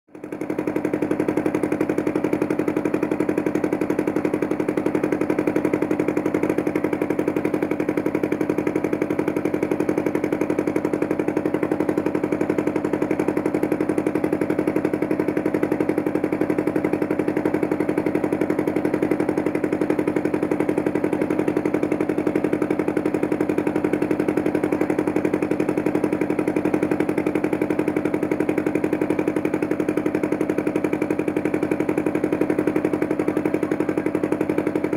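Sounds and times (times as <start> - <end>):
motorboat engine chugging: 0.1 - 34.9.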